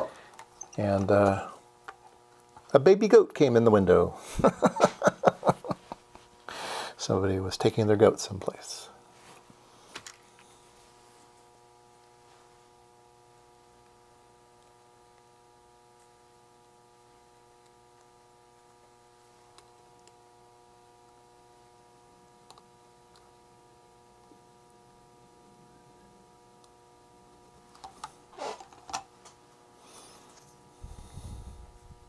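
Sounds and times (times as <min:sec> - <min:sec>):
faint electrical hum: 0:00.0 - 0:32.0
clicking and rattling of parts: 0:27.7 - 0:29.4.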